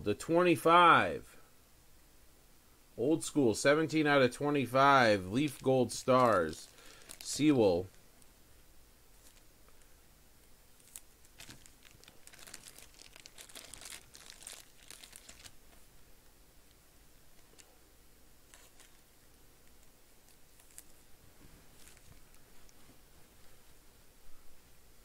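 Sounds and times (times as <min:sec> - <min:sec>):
plastic sleeves crinkling: 0:05.2 - 0:08.0, 0:09.1 - 0:15.9, 0:18.4 - 0:23.8.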